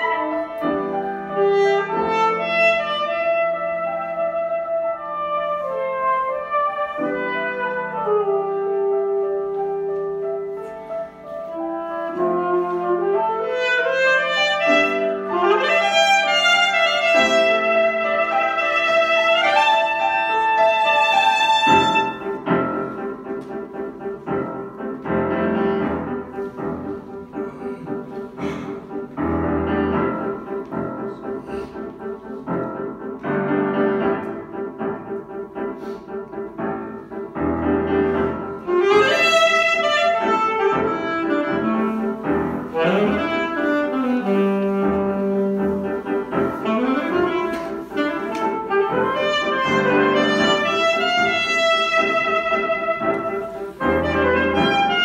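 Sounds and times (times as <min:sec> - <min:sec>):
alto saxophone: 0:00.0 - 0:23.6, 0:37.6 - 0:55.0
grand piano: 0:00.0 - 0:55.0.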